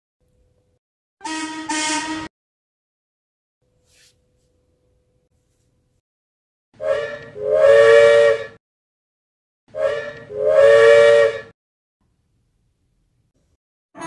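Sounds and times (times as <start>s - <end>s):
steam engine whistle: 1.2s - 2.3s, 6.8s - 8.6s, 9.7s - 11.5s.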